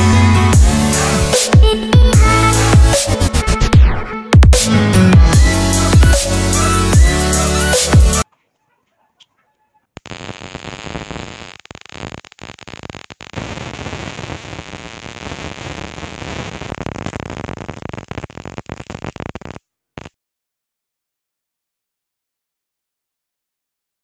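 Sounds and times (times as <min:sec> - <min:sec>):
electric arc crackling and hissing: 0:10.0 - 0:20.1.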